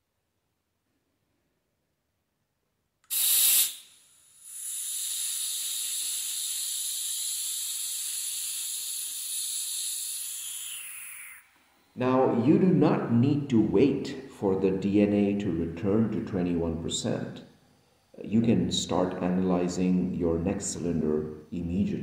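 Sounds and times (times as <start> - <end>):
gas hissing from cylinder valve: 3.0 - 11.5.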